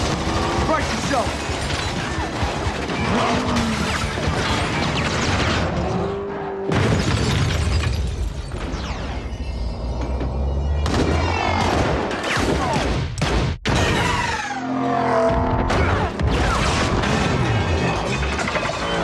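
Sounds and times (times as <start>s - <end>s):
racing car engine: 0.0s - 4.7s, 5.4s - 6.7s
booms and crashes: 6.7s - 9.2s.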